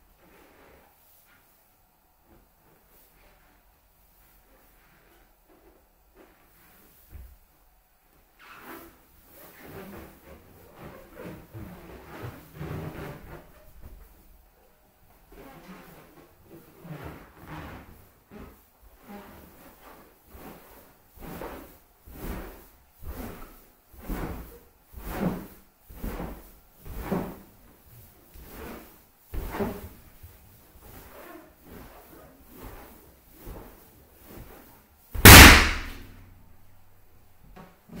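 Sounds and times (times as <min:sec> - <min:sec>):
balloon creaking and squeaking: 0:35.2 - 0:36.0
balloon bursting pop: 0:35.2 - 0:36.1.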